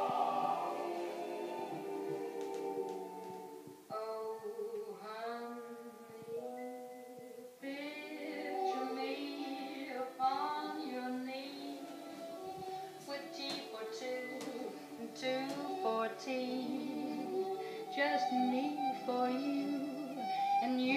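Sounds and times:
music with singing voice: 0.0s - 20.9s.

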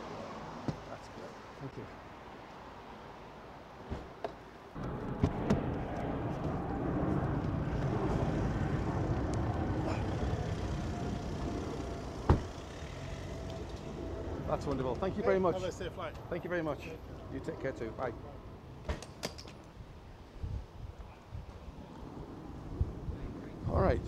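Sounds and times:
car running: 4.8s - 15.0s.

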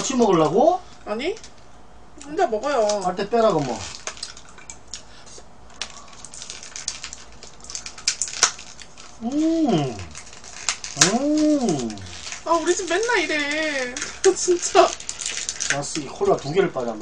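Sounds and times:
food packaging crinkling: 2.8s - 17.0s
short voice sounds: 9.2s - 10.2s, 11.0s - 12.2s.

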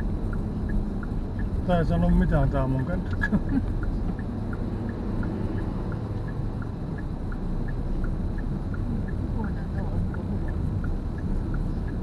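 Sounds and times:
car engine and road noise: 0.0s - 12.0s
turn signal ticking: 0.0s - 12.0s.

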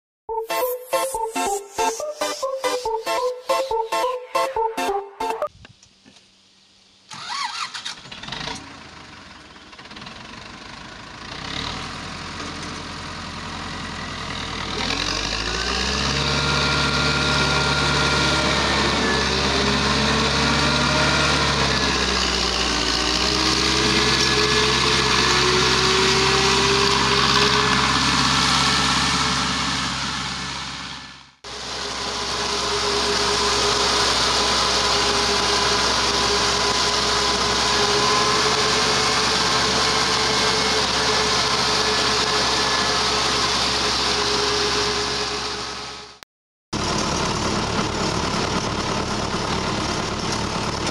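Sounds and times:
tone rising in pitch: 0.3s - 5.5s, 16.2s - 28.0s, 31.6s - 45.4s
tractor diesel engine running: 7.0s - 46.2s, 46.8s - 50.9s.

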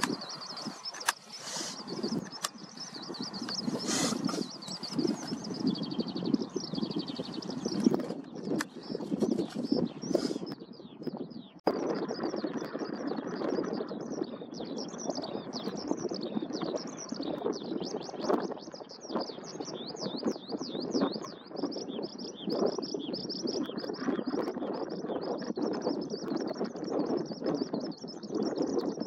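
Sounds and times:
steady background noise: 0.0s - 10.5s
skylark singing: 0.0s - 29.0s.

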